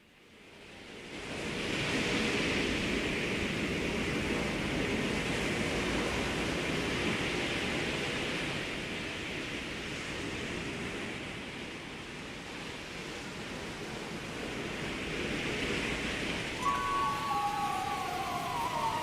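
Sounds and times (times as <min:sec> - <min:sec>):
sea surf hissing: 0:16.5 - 0:19.0.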